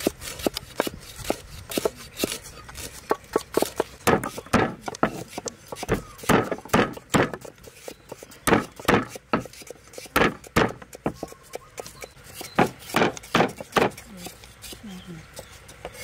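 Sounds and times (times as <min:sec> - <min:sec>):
stone pestle knocking on wood: 0:03.1 - 0:07.5, 0:08.5 - 0:09.5, 0:10.1 - 0:11.3, 0:12.6 - 0:14.0.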